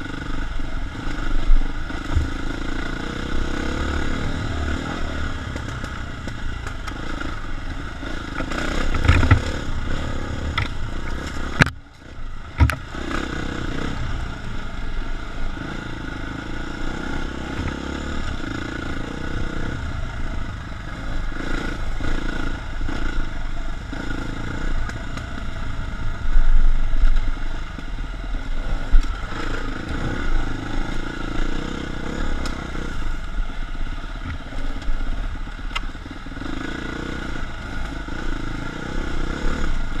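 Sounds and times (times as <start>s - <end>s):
dirt bike engine revving: 0.0s - 40.0s
bike clatter and rattling: 5.5s - 11.8s.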